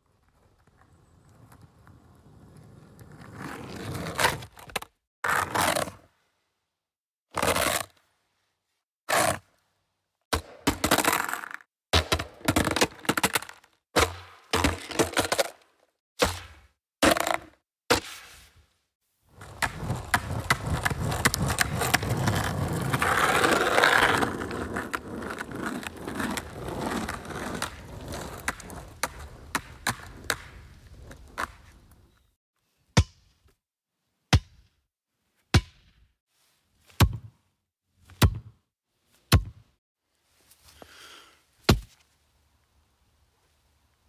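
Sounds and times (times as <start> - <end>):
skateboard wheels rolling on pavement: 0.0 - 6.0, 7.4 - 8.0, 9.1 - 9.5, 10.4 - 15.8, 19.3 - 32.2.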